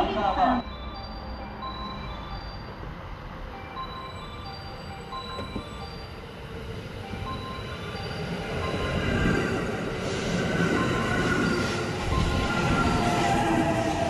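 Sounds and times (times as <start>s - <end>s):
train wheels rumbling on rails: 5.2s - 14.0s.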